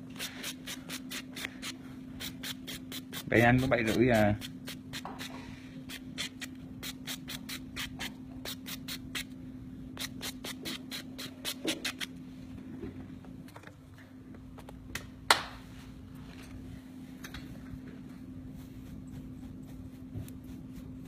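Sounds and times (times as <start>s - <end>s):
nail buffer rubbing on nail: 10.0s - 12.1s.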